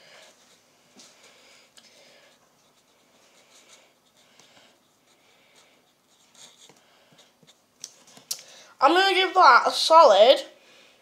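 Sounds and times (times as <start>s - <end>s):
pen scratching on paper: 2.6s - 7.6s.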